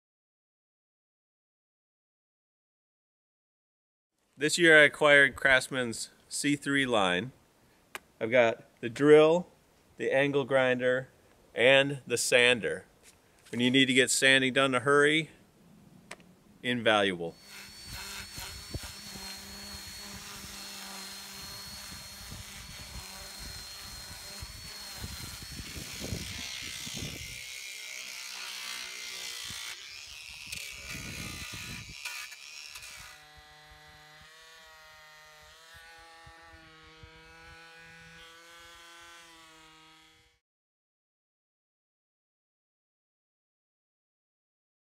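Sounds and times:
detail sander buzzing: 17.2s - 40.4s
disc sander scratching wood: 17.3s - 40.3s
drill spinning flap sander: 17.3s - 40.4s.

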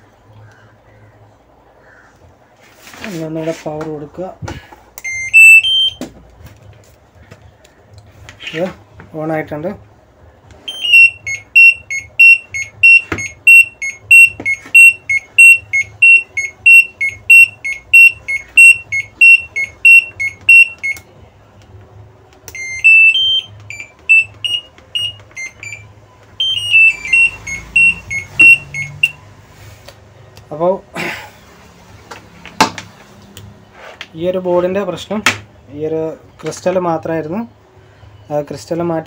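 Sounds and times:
buzzer beeping high and low: 5.0s - 6.0s, 10.7s - 21.0s, 22.6s - 29.2s
rising beeps: 5.0s - 6.0s, 10.7s - 21.0s, 22.5s - 29.2s.

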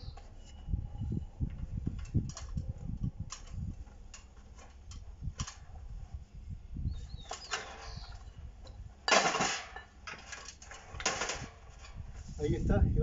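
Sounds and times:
metal creak: 7.0s - 12.0s
metallic clatter at vise: 7.2s - 12.0s.

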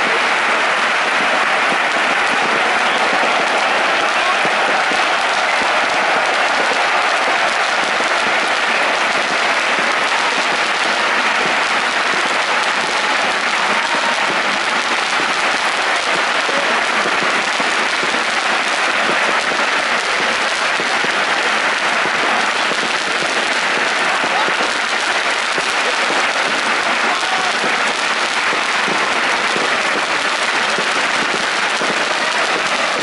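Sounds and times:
stadium crowd cheering and clapping: 0.0s - 33.0s.

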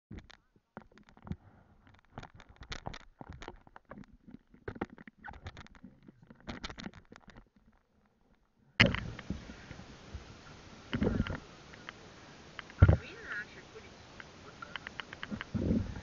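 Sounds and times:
lake water splashing: 8.8s - 16.0s
steady hiss: 8.8s - 16.0s.

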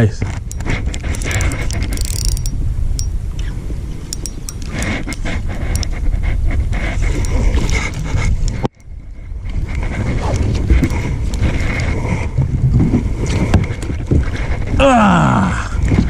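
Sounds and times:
rumble and rustling on microphone: 0.0s - 16.0s
fishing reel clicks: 0.5s - 3.5s, 4.1s - 5.9s.

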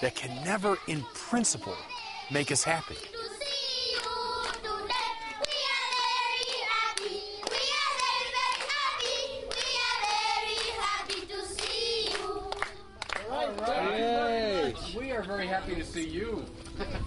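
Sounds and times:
children singing together: 0.0s - 13.0s
hand claps: 3.9s - 4.7s, 5.4s - 13.7s.

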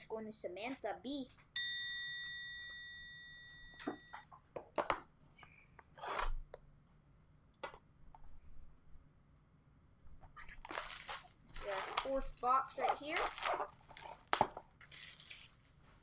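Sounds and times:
bell-like chime: 1.6s - 4.2s
cards and wrappers sliding and crinkling: 10.4s - 16.0s.

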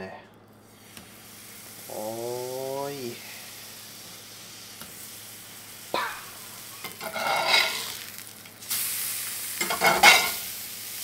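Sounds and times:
fish sizzling in butter: 0.6s - 11.0s
spatula scraping pan: 6.8s - 8.0s.

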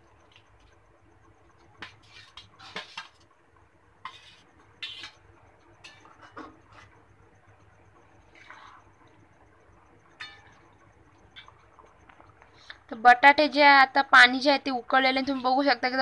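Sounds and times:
metal spatula scraping steel bowl: 1.8s - 3.2s, 4.0s - 5.2s.

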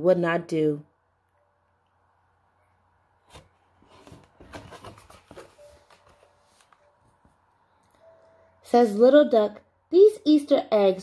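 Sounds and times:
paper rustling and sliding: 3.3s - 7.2s.

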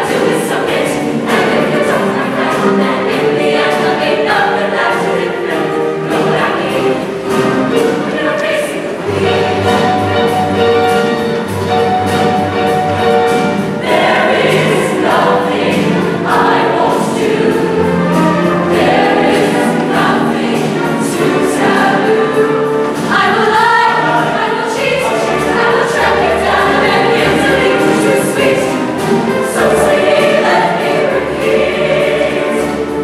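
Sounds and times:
choir singing: 0.0s - 33.0s
instrumental accompaniment: 0.0s - 33.0s.

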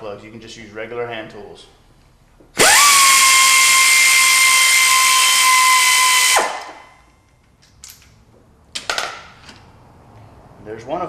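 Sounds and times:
air ratchet whining: 2.6s - 6.8s.

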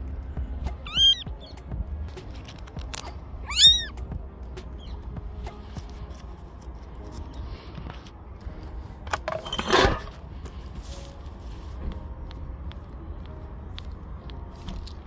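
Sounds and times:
steady low rumble: 0.0s - 9.1s.

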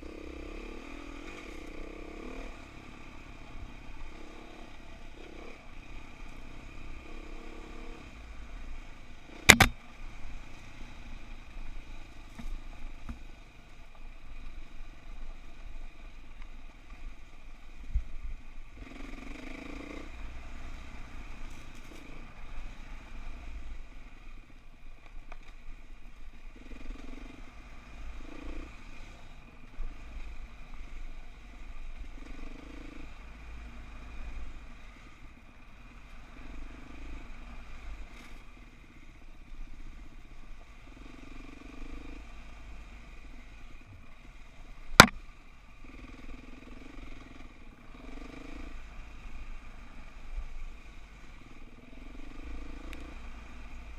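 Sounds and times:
sharp knock: 9.5s - 9.8s.

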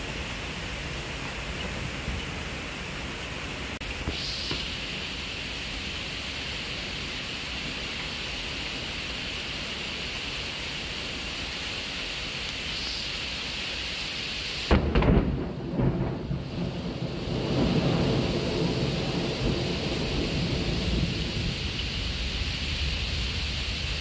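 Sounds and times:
heavy rain pouring on pavement: 0.0s - 24.0s
deep rumble of thunder: 14.7s - 24.0s.

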